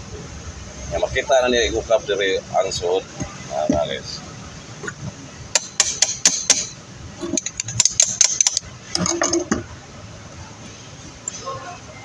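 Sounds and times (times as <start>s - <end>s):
metal parts clicking: 5.6s - 9.6s.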